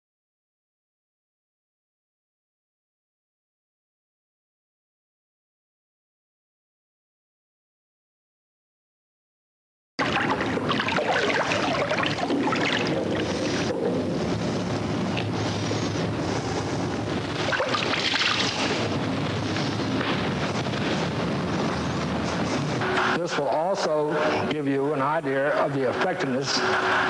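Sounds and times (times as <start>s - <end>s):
water churning and crackling: 10.0s - 19.5s.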